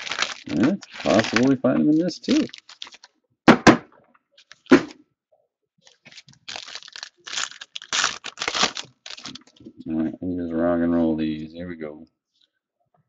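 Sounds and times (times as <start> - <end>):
foil wrapper tearing and crinkling: 0.0 - 3.2, 4.4 - 4.9, 5.9 - 9.7
sharp knocks: 3.5 - 4.0.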